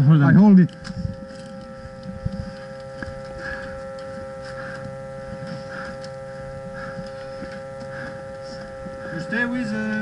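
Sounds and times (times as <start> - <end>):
electrical hum: 0.0 - 10.0
soft repeating pulse: 0.0 - 10.0.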